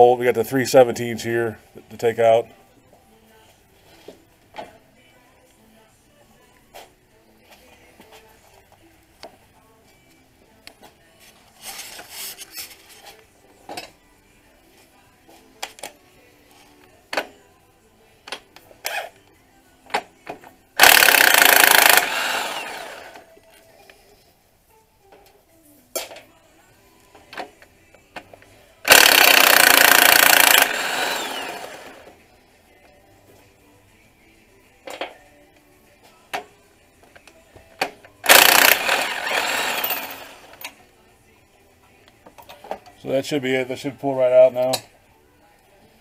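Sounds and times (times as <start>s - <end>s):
impact wrench hammering: 20.8s - 23.0s, 28.9s - 31.8s, 37.8s - 40.4s.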